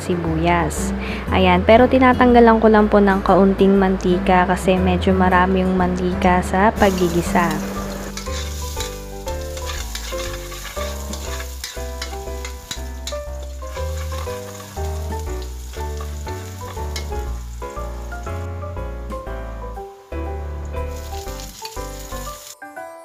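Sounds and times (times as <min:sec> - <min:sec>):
spatula scraping a wok: 0:06.8 - 0:17.7
garlic sizzling in oil: 0:06.8 - 0:18.8, 0:19.5 - 0:22.6.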